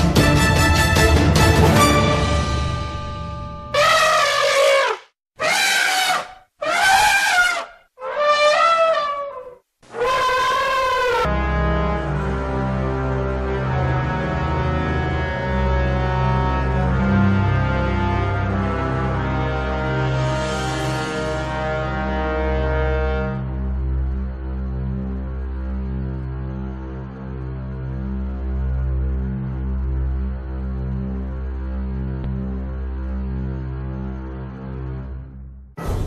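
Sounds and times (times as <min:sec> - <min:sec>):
elephant trumpeting: 0:03.8 - 0:11.3.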